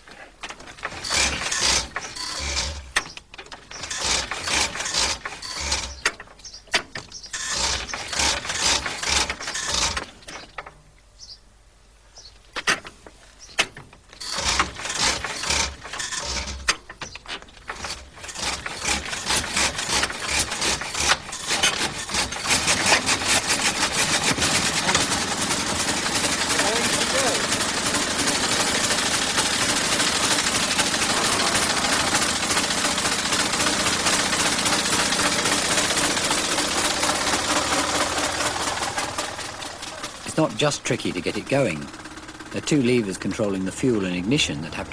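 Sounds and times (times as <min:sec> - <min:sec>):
engine hand-crank clatter: 0:00.1 - 0:10.8, 0:12.5 - 0:44.9
engine running: 0:17.7 - 0:44.9.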